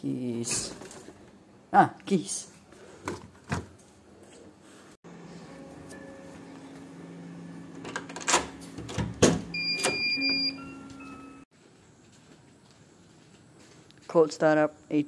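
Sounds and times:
high tone: 5.3s - 7.6s, 9.5s - 11.4s.

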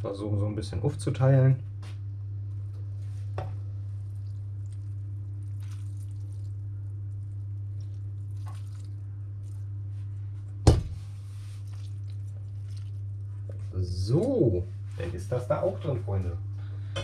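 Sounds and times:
steady low hum: 0.0s - 17.0s
wet squishing and dripping: 3.6s - 15.0s
milk being poured: 3.8s - 10.1s, 11.5s - 13.7s.

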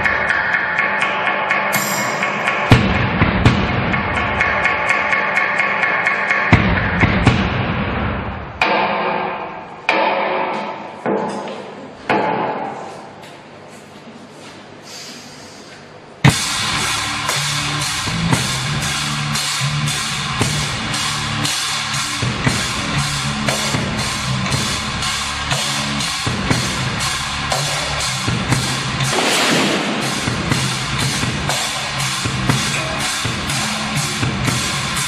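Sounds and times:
drum kit beat: 1.0s - 9.0s, 16.2s - 35.0s
double bass notes: 1.7s - 5.4s, 6.5s - 8.8s, 16.2s - 35.0s.

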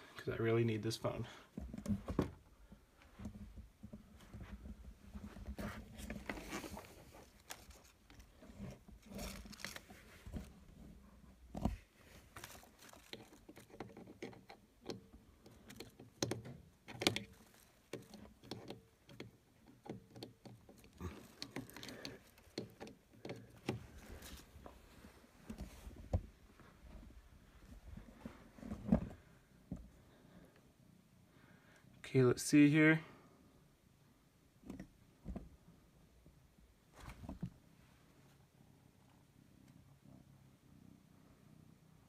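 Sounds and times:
charger cable handling clicks: 12.8s - 24.4s.

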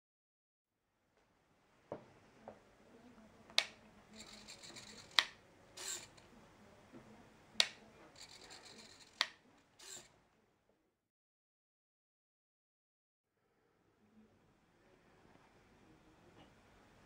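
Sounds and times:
toggle switch clicking: 3.6s - 3.8s, 5.0s - 5.4s, 7.6s - 7.8s
servo whirring: 3.6s - 6.3s, 7.6s - 10.1s.

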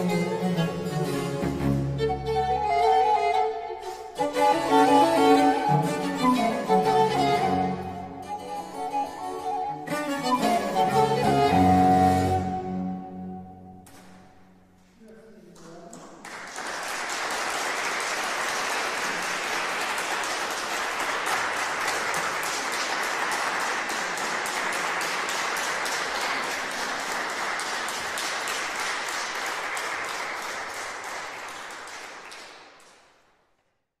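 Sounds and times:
audience applauding: 0.0s - 9.1s, 15.6s - 33.2s.

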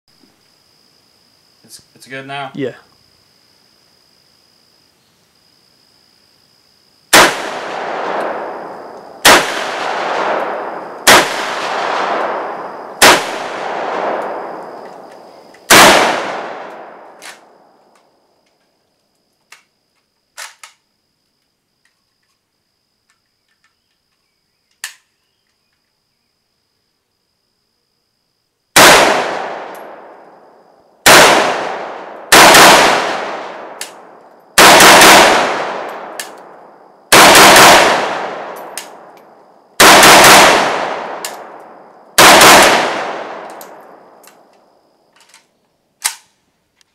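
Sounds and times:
rifle shots with echo: 7.1s - 14.8s, 15.6s - 17.6s, 28.8s - 30.3s, 31.0s - 39.2s, 39.8s - 44.5s
rifle handling clicks: 24.7s - 25.1s, 35.9s - 36.5s, 41.2s - 41.7s, 43.4s - 44.6s, 45.2s - 46.3s.

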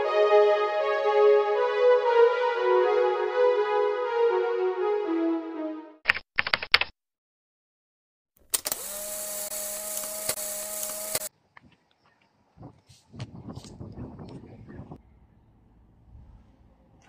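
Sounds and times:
sharp clicks: 8.5s - 11.7s.

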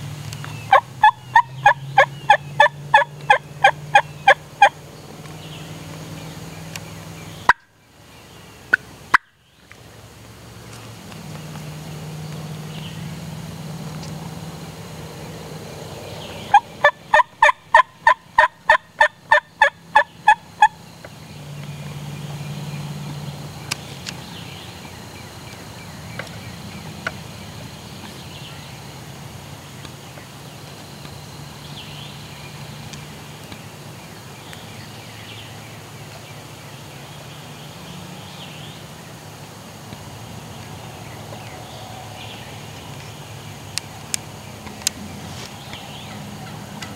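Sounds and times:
wild turkey yelping: 0.7s - 4.8s, 16.4s - 20.8s.

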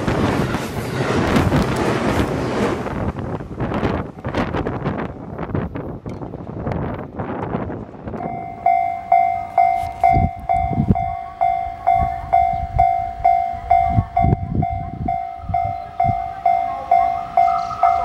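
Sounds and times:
train running noise: 0.0s - 18.0s
level-crossing warning bell: 8.2s - 18.0s.

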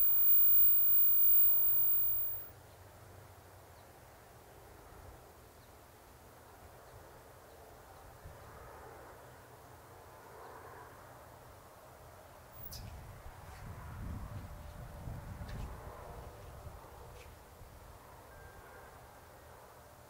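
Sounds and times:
low steady rumble: 0.0s - 2.4s
distant noise haze: 0.0s - 2.5s.

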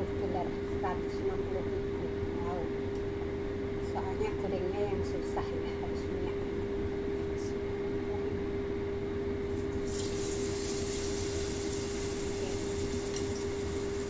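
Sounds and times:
machine hum: 0.0s - 14.0s
even hiss: 9.9s - 14.0s.

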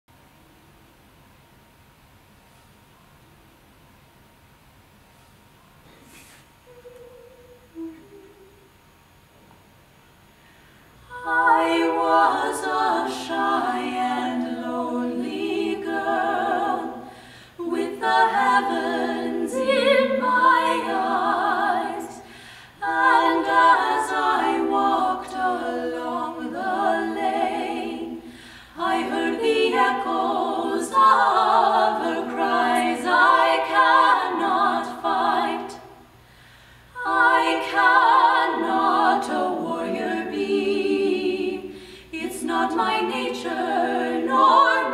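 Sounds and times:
women singing a cappella: 11.0s - 36.2s, 36.9s - 44.9s.

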